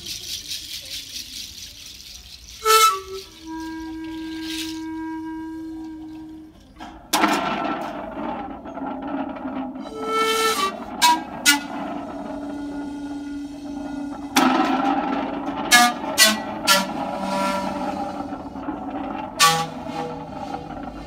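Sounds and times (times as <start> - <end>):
seed-pod rattle shaking: 0.0 - 4.8
panpipe notes: 2.5 - 6.6
loud rushing rattling noise: 7.0 - 21.0.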